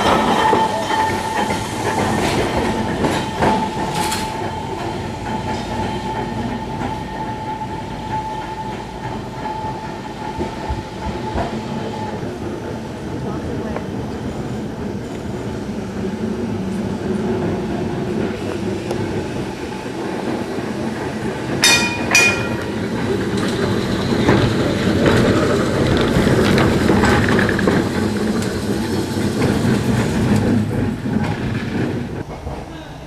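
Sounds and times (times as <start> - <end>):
tram rumbling along track: 0.0 - 33.0
tram bell clangs: 21.5 - 23.1.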